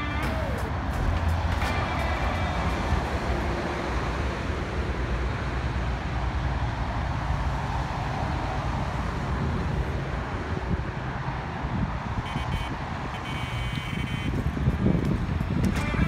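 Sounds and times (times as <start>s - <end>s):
distant road traffic: 0.0s - 16.0s
wind on microphone: 8.2s - 16.0s.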